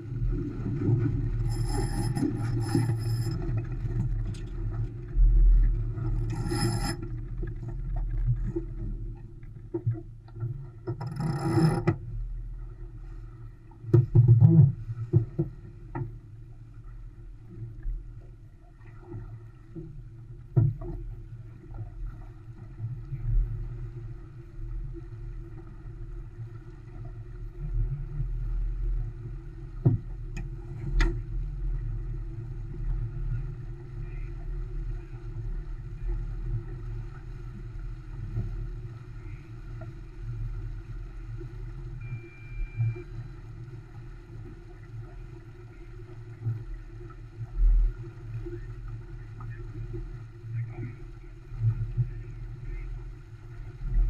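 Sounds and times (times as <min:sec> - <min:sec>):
faint short beep: 0:41.9 - 0:43.3.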